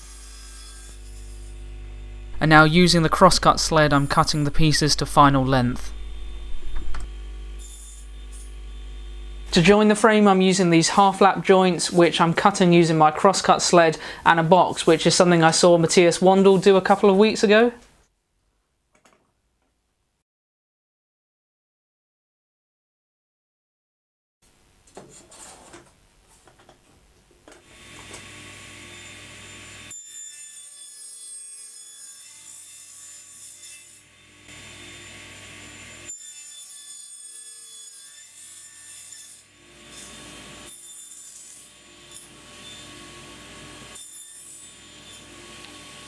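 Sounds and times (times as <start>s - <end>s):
table saw cutting wood: 0.0s - 9.8s, 27.6s - 46.0s.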